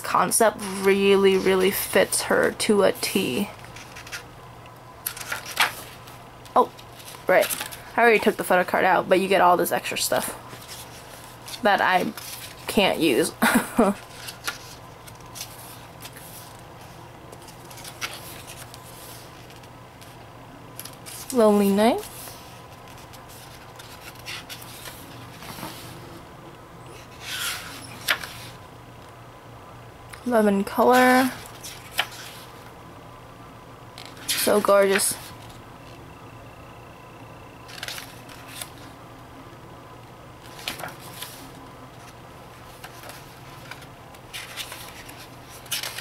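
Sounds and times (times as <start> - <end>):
low steady hum: 0.0 - 46.0
paper pages rustling: 3.5 - 4.3, 5.0 - 7.9, 10.5 - 12.8, 14.0 - 21.4, 22.0 - 26.0, 27.0 - 28.6, 30.9 - 32.7, 34.0 - 35.6, 37.7 - 38.9, 40.4 - 46.0.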